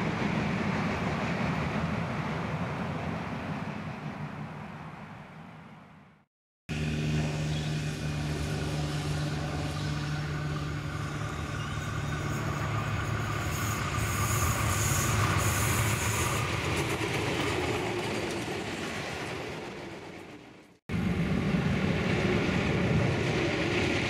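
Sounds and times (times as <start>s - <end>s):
train wheels rumbling on rail: 0.0s - 5.0s, 9.0s - 24.0s
diesel railcar engines running: 0.0s - 6.1s, 6.7s - 24.0s
high squeal: 10.9s - 16.6s.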